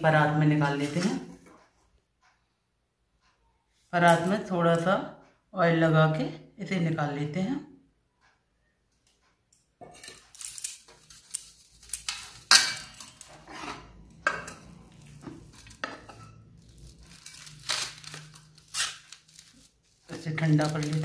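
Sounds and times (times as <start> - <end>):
spoon scraping and clinking on pan: 9.6 - 18.3.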